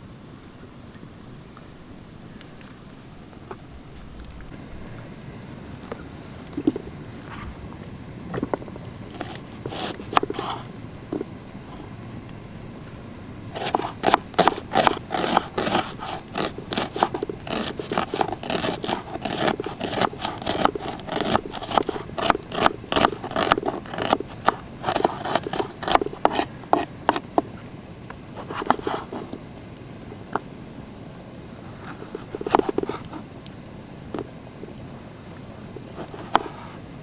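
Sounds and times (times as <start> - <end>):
knife chopping on wooden board: 13.6 - 27.4.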